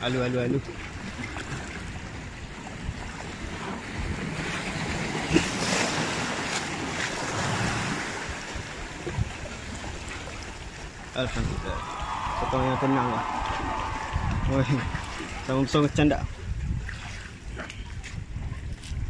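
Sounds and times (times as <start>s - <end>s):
sea waves breaking over rocks: 0.0s - 18.3s
wind buffeting microphone: 6.8s - 19.0s.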